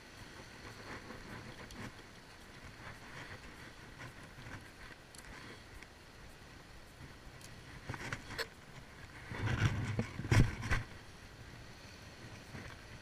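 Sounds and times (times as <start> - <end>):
sea and wind: 0.0 - 13.0
fishing rod knocking and rustling: 7.0 - 11.0.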